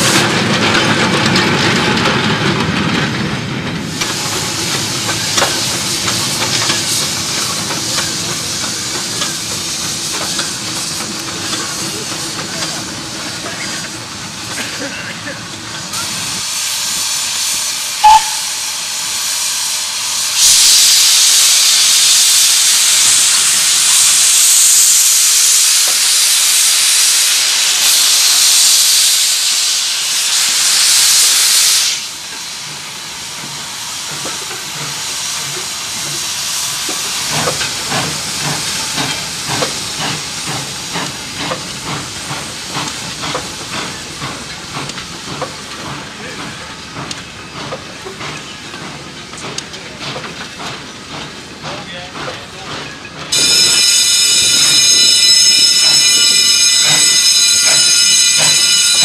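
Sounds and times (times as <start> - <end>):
steam locomotive exhaust chuffs: 0.0 - 14.9, 15.5 - 59.0
steam hissing: 3.8 - 59.0
loud whistle pip: 18.0 - 18.6, 53.4 - 59.0.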